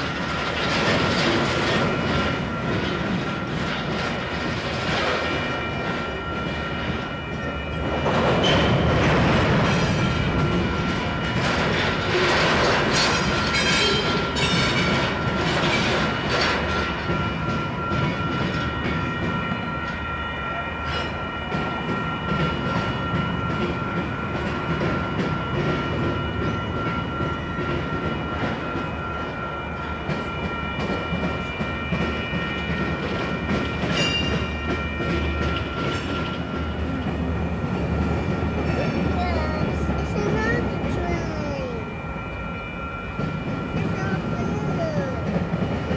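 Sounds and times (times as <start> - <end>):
train wheels clattering over rail joints: 0.0 - 7.1, 7.8 - 19.4
freight train rumble: 0.0 - 45.9.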